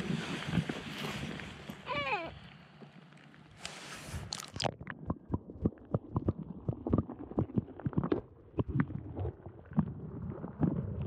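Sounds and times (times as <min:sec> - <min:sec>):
low underwater rumble: 0:04.6 - 0:11.0
underwater knocks and clicks: 0:04.6 - 0:11.0.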